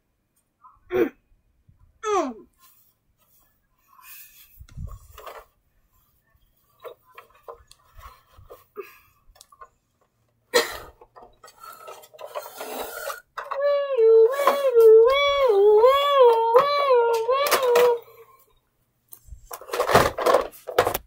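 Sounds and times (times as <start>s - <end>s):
plastic clatter: 4.7s - 5.6s, 6.7s - 13.7s, 19.4s - 21.0s
toy car scraping across rug: 10.8s - 13.4s.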